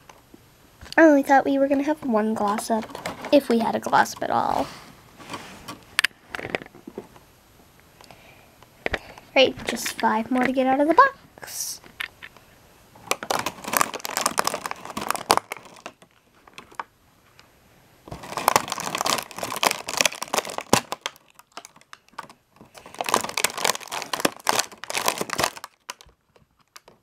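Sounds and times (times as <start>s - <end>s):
plastic packaging crinkling: 2.1s - 4.7s, 13.0s - 16.9s, 18.1s - 27.0s.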